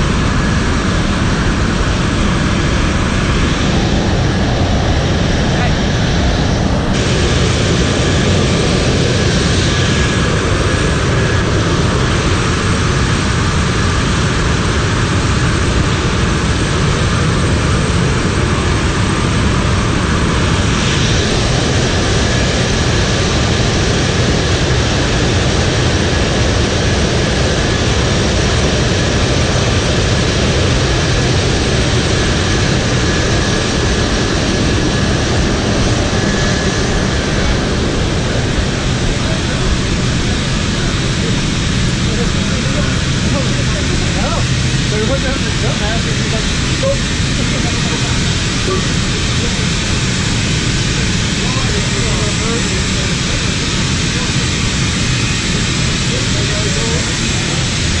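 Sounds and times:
jet engines running: 0.0s - 58.0s.

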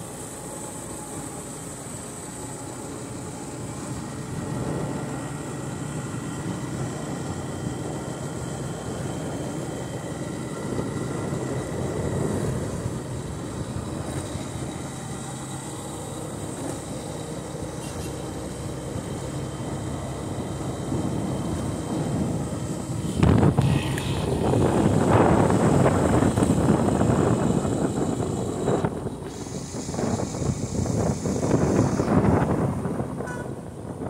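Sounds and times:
motorcycle engine running: 0.0s - 34.0s
road noise: 0.0s - 34.0s
wind rush: 19.8s - 34.0s.

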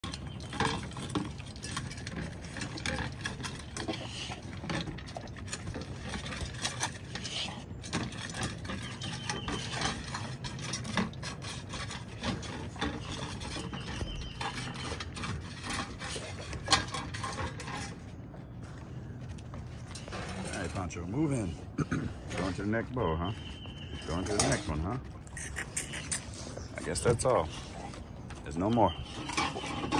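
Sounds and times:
puppy chewing: 0.0s - 20.4s
metal bowl clanking: 21.8s - 25.1s, 28.4s - 29.9s.

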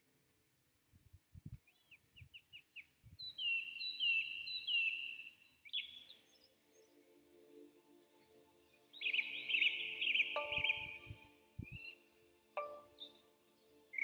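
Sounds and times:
bird chirping: 1.7s - 7.0s, 8.8s - 14.0s
faint music tones: 6.1s - 14.0s
bird whistling falling notes: 10.4s - 11.1s.

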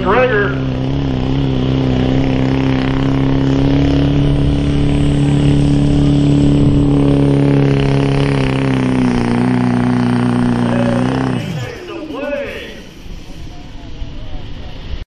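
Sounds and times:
diesel truck engine at full load: 0.0s - 15.0s
hiss over engine: 11.6s - 15.0s.

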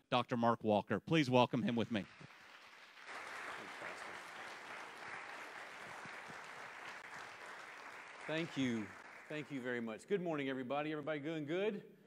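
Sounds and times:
congregation applauding: 1.6s - 10.0s.

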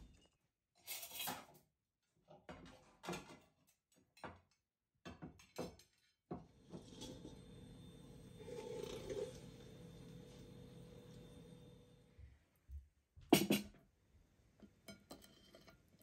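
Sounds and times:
plates and cutlery clinking on table: 13.3s - 13.7s.

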